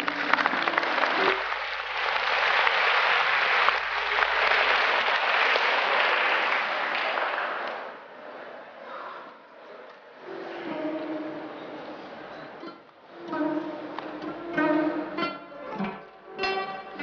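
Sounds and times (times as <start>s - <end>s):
large audience applauding: 0.0s - 8.2s.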